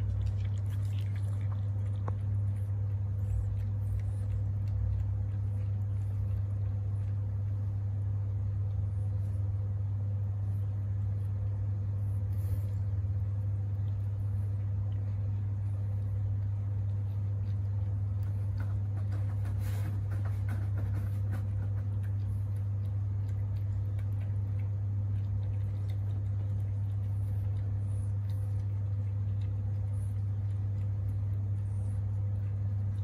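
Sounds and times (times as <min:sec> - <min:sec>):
cat licking and chewing: 0:00.0 - 0:33.0
steady low hum: 0:00.0 - 0:33.0.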